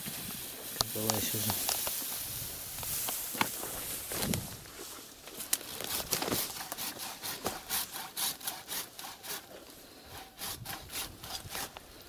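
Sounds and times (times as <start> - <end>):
hand saw cutting wood: 5.8 - 11.8.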